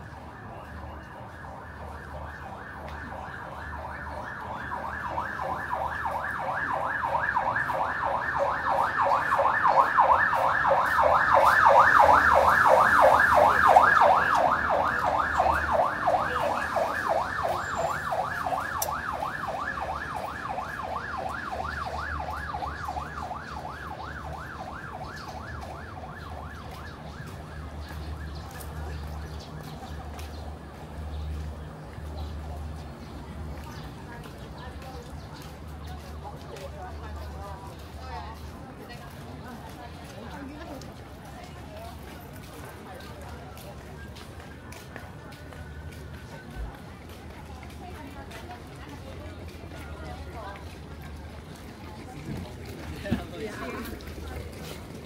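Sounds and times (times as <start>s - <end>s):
emergency vehicle siren wailing: 0.0s - 32.7s.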